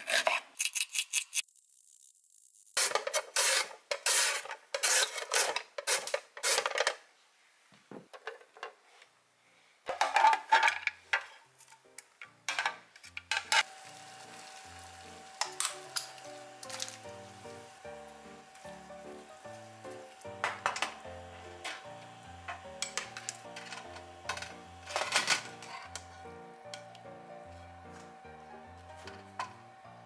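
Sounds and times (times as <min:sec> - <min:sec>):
background music: 0:11.7 - 0:30.0
pot of water boiling: 0:13.6 - 0:23.8
carrot shredded on slicer: 0:13.6 - 0:29.8.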